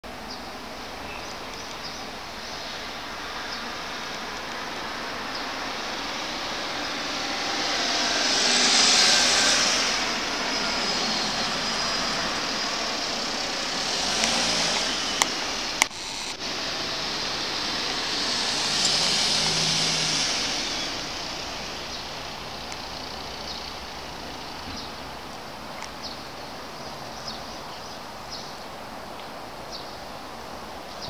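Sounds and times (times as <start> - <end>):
cars passing: 0.2 - 29.0
sharp clicks: 13.7 - 16.4.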